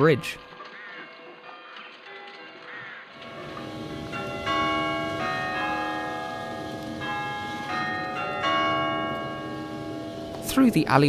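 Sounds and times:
church bells ringing: 3.2s - 11.0s.

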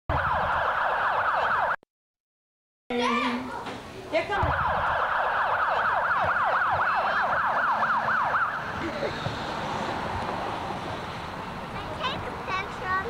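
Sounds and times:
electronic siren yelping: 0.1s - 1.8s, 4.4s - 8.8s.

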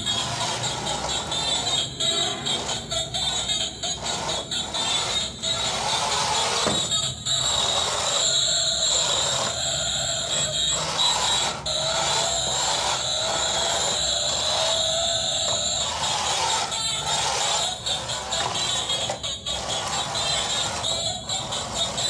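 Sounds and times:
small gear motors whining: 0.0s - 22.0s.

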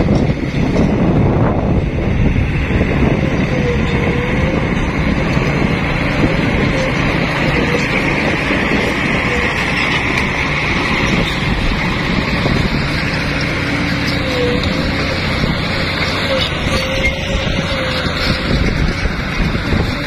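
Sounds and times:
truck diesel engine drone: 0.0s - 20.0s
short squeaks: 5.3s - 19.5s.

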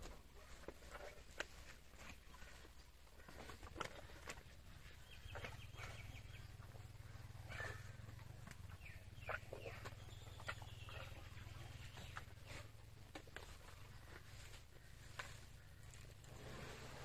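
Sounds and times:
faint birds calling: 0.0s - 17.0s
low steady hum: 0.0s - 17.0s.

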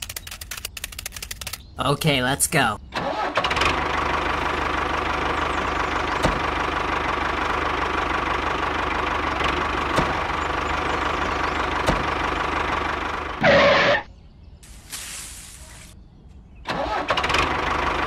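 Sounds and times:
small tractor engine chugging: 3.2s - 13.4s.

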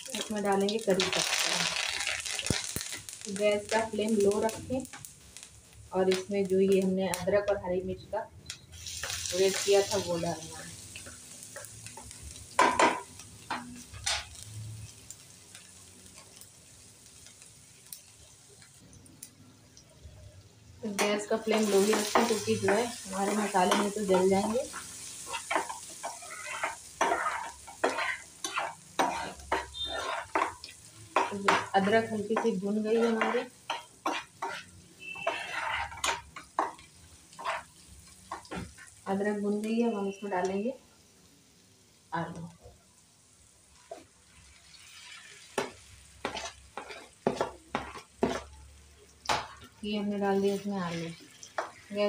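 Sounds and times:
faint sizzle of frying: 0.0s - 52.0s
metal spoon scraping frying pan: 21.0s - 38.9s, 45.0s - 48.5s.

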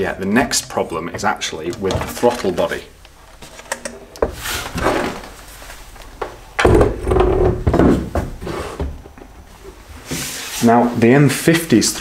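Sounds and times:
plastic scraping on wood: 0.4s - 3.6s.

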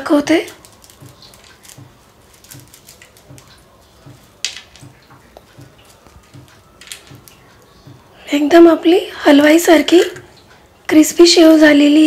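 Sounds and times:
crisp fried snack crackling: 0.0s - 8.0s.

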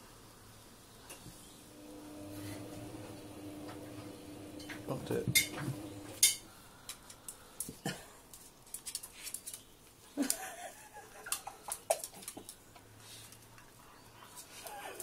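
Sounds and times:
claws clicking on tiled floor: 6.8s - 13.8s.

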